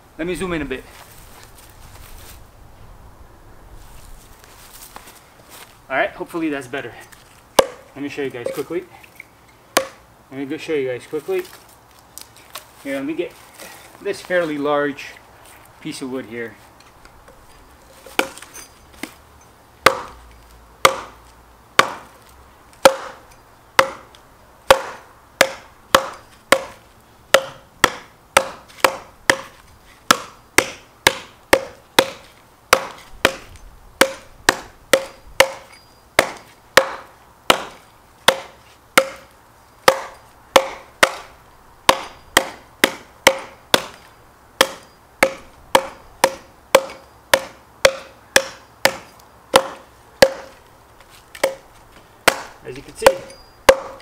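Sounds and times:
hatchet chopping log: 0:07.6 - 0:07.9, 0:09.7 - 0:10.0, 0:18.1 - 0:19.2, 0:19.8 - 0:20.2, 0:20.8 - 0:21.2, 0:21.8 - 0:22.2, 0:22.8 - 0:41.3, 0:41.9 - 0:50.6, 0:51.4 - 0:51.6, 0:52.2 - 0:54.0.

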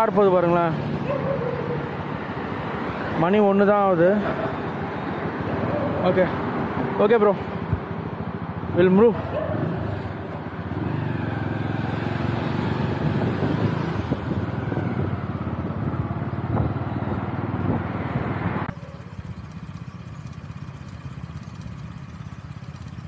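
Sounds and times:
motorcycle engine running: 0:00.0 - 0:23.0
wind rushing over microphone: 0:12.2 - 0:18.7.

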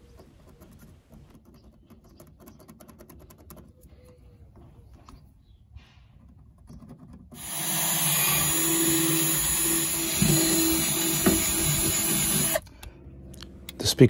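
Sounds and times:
cordless drill drilling plastic: 0:07.4 - 0:12.6.

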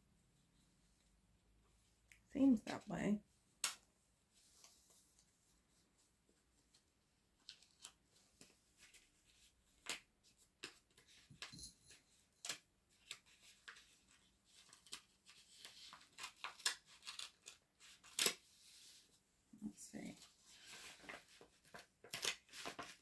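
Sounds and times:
paper rustling and crinkling: 0:12.5 - 0:19.2, 0:20.1 - 0:23.0.

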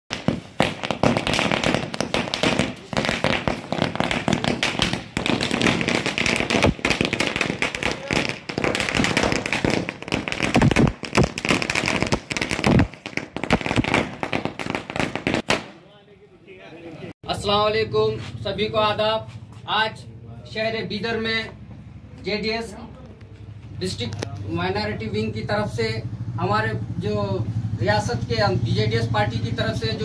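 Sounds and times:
heavy firecracker bangs: 0:00.1 - 0:15.8
firecrackers crackling: 0:00.1 - 0:15.9.

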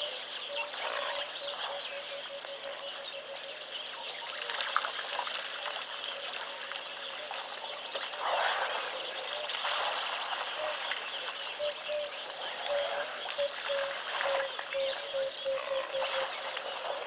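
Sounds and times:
birds chirping and calling: 0:07.0 - 0:17.0.

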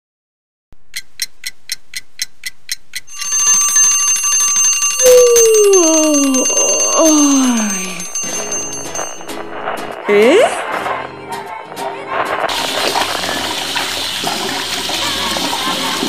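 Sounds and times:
clock ticking: 0:00.8 - 0:10.4
alarm clock ringing: 0:03.1 - 0:10.0
person yawning: 0:05.0 - 0:08.1.

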